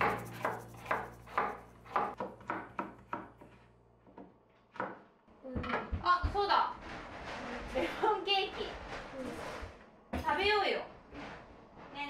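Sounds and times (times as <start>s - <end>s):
knife chopping on wooden board: 0.0s - 3.6s.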